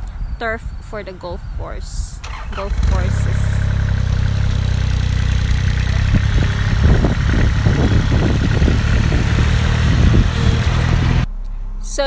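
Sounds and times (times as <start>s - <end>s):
car engine idling: 2.2s - 11.3s
rough uneven engine noise: 2.2s - 11.3s.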